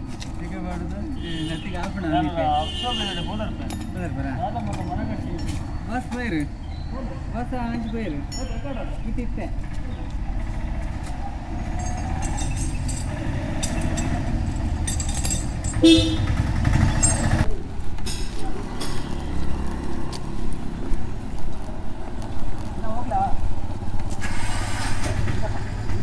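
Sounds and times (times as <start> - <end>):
motorcycle engine running: 13.0 - 17.5.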